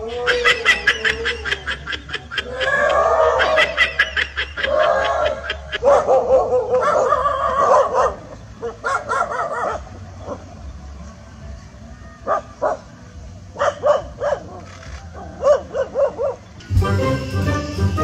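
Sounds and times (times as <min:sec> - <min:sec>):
dog barking and yelping: 0:00.0 - 0:10.5, 0:12.2 - 0:12.9, 0:13.6 - 0:16.5.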